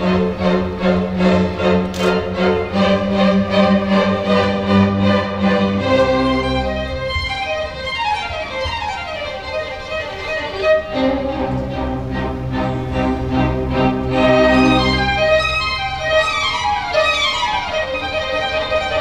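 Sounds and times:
violins: 0:00.0 - 0:19.0.

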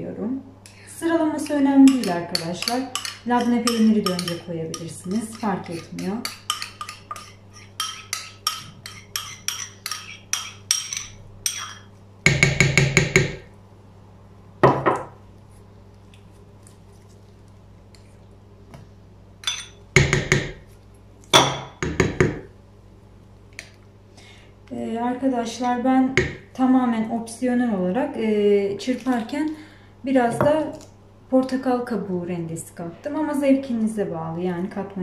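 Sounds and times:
metal spoon scraping bowls: 0:01.2 - 0:11.9, 0:19.4 - 0:19.8.

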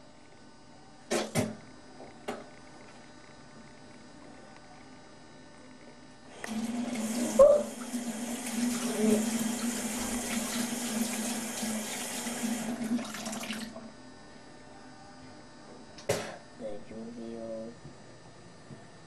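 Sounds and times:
steady low hum: 0:00.0 - 0:11.5, 0:13.7 - 0:19.0
tap running water into basin: 0:06.4 - 0:13.8.

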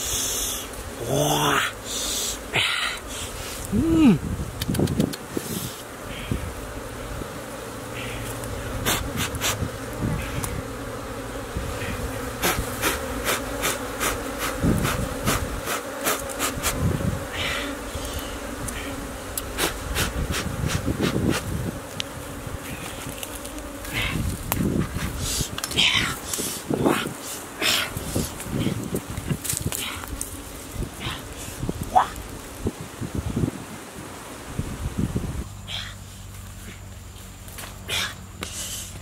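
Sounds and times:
bees buzzing: 0:00.0 - 0:39.0
sharp clicks and cracks: 0:04.6 - 0:05.2.

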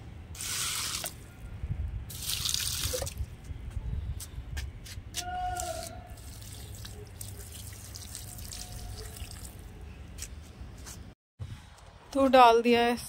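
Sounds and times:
water trickling onto soil: 0:00.4 - 0:01.2, 0:02.1 - 0:03.2, 0:05.6 - 0:09.7.

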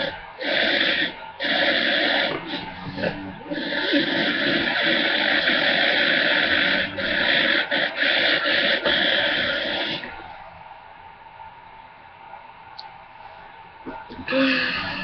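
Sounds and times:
harsh garbled toy speaker noise: 0:00.0 - 0:10.2, 0:13.9 - 0:15.0
low room sound: 0:00.0 - 0:15.0.

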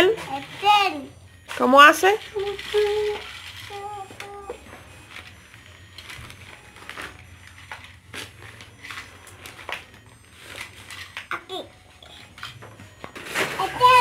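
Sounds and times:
toy train clicking on plastic track: 0:02.2 - 0:04.4.

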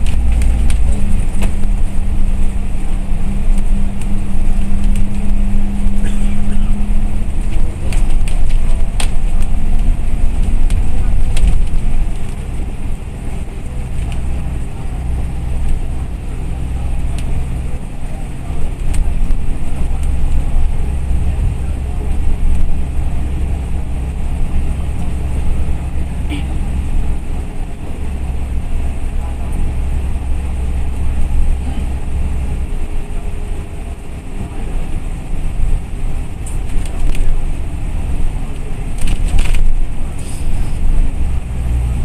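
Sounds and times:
bodywork clicks and rattles: 0:00.0 - 0:14.4, 0:35.6 - 0:37.5, 0:38.2 - 0:41.1
bus engine and road drone: 0:00.0 - 0:42.0.

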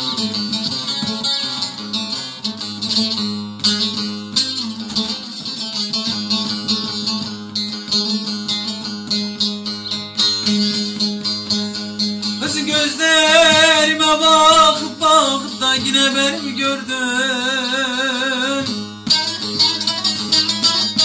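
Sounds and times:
plucked lute folk music: 0:00.0 - 0:21.0.

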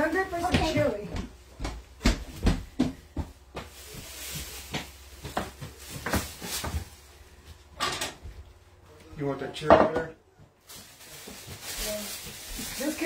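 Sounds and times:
plastic bag rustling: 0:03.2 - 0:07.8, 0:10.6 - 0:13.0
kitchen items knocking on wood: 0:09.6 - 0:10.2.

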